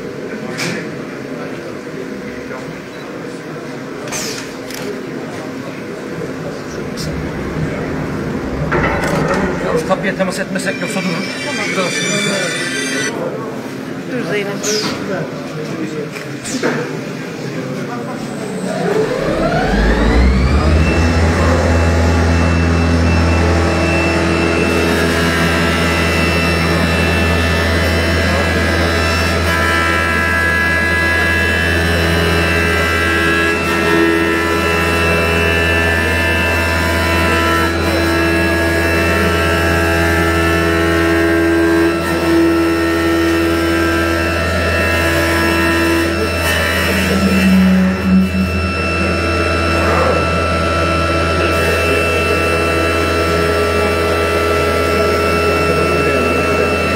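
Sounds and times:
wood-turning lathe whining: 0:06.2 - 0:13.1, 0:18.9 - 0:56.9.

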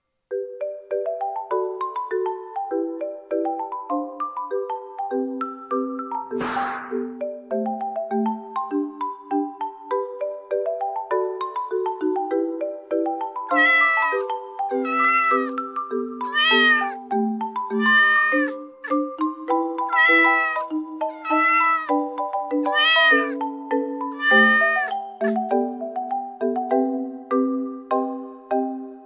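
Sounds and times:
marimba background music: 0:00.3 - 0:29.0
kitten meowing: 0:13.5 - 0:15.6, 0:16.2 - 0:17.0, 0:17.7 - 0:19.0, 0:19.9 - 0:22.1, 0:22.7 - 0:23.4, 0:24.1 - 0:25.4.

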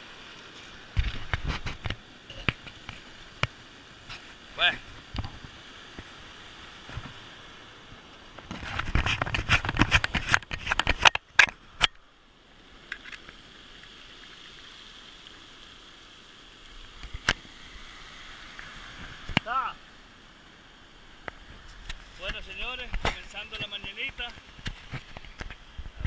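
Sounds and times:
surf washing over pebbles: 0:00.0 - 0:26.0
close crackling and knocking: 0:00.9 - 0:04.3, 0:08.4 - 0:12.0, 0:21.2 - 0:25.6.

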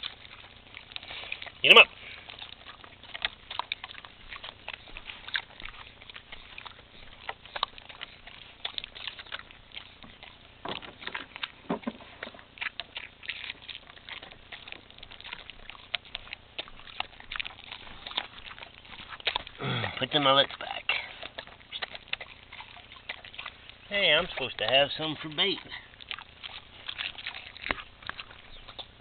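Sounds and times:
dog biting and chewing: 0:00.0 - 0:29.0.

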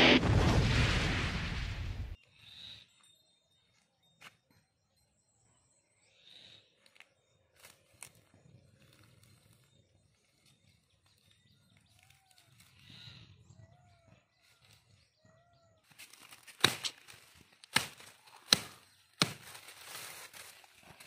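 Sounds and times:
soft bird chirps: 0:02.2 - 0:16.6.

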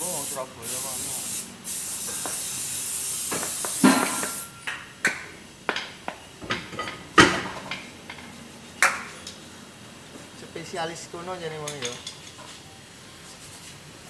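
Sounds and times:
steady hiss: 0:00.0 - 0:06.3.

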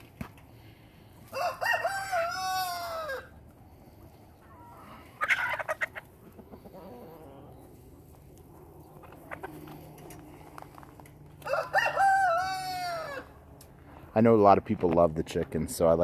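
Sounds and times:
rooster crowing: 0:01.3 - 0:03.4, 0:11.4 - 0:13.4
chicken clucks: 0:04.0 - 0:13.1.

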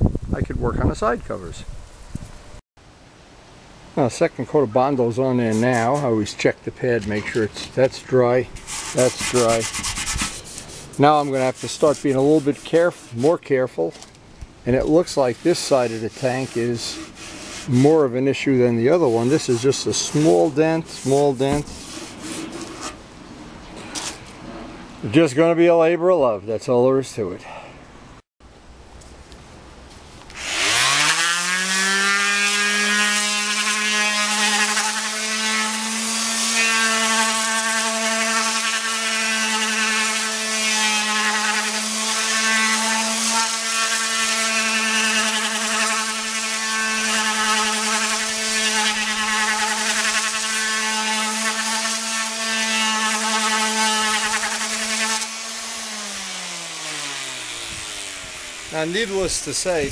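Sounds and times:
sandpaper hissing on filler: 0:08.5 - 0:13.4, 0:14.9 - 0:23.0
electric sander humming: 0:30.4 - 0:59.7.

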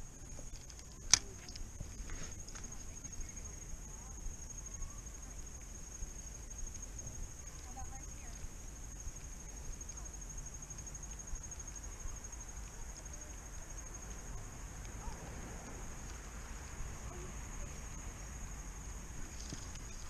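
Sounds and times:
insect trilling: 0:16.0 - 0:20.0.

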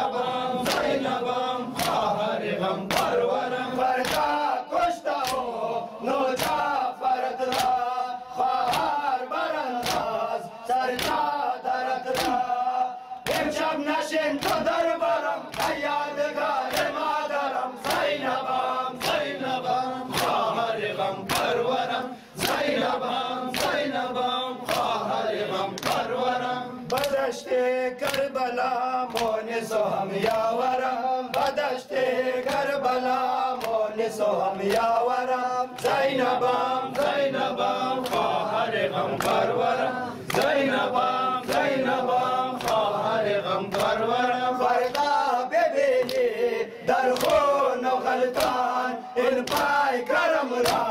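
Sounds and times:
men chanting in unison: 0:00.0 - 0:50.9
chest-beating slaps: 0:00.6 - 0:01.0, 0:01.7 - 0:02.1, 0:02.8 - 0:03.2, 0:04.0 - 0:04.4, 0:05.2 - 0:05.5, 0:06.4 - 0:06.7, 0:07.4 - 0:07.8, 0:08.4 - 0:09.0, 0:09.7 - 0:10.2, 0:10.9 - 0:11.3, 0:12.0 - 0:12.5, 0:14.3 - 0:14.7, 0:15.4 - 0:16.0, 0:16.6 - 0:17.0, 0:19.0 - 0:19.4, 0:20.1 - 0:20.5, 0:22.4 - 0:22.9, 0:23.5 - 0:23.8, 0:25.7 - 0:26.1, 0:26.9 - 0:27.2, 0:28.0 - 0:28.3, 0:29.1 - 0:29.4, 0:33.6 - 0:33.8, 0:38.0 - 0:38.4, 0:40.2 - 0:41.8, 0:42.6 - 0:43.0, 0:47.1 - 0:47.5, 0:50.6 - 0:50.9.

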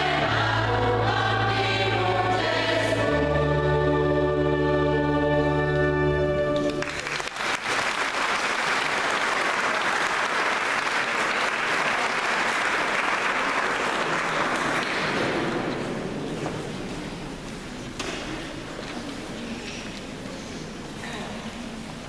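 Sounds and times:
choir holding a chord: 0:00.0 - 0:06.7
audience applause: 0:06.6 - 0:15.5.

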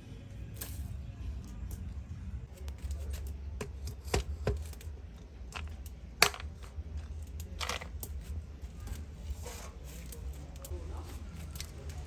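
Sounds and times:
steady low rumble: 0:00.0 - 0:03.6
food preparation knocks and clicks: 0:03.5 - 0:04.9.

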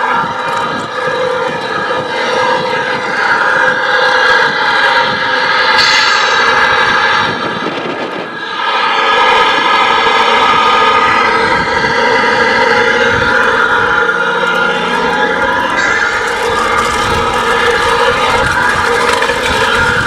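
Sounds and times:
toy truck motor whine: 0:09.3 - 0:20.0.

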